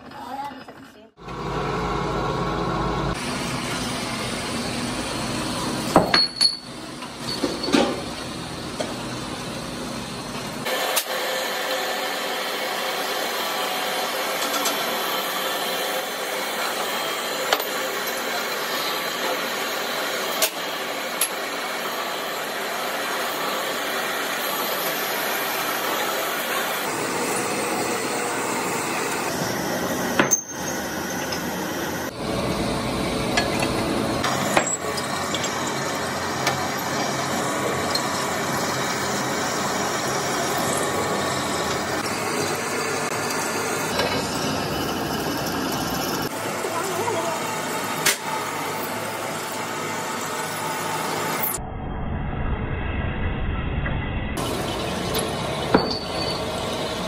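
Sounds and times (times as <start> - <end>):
drill press cutting steel: 1.2 - 51.6, 54.4 - 57.0
steel bars clanking: 54.9 - 56.8.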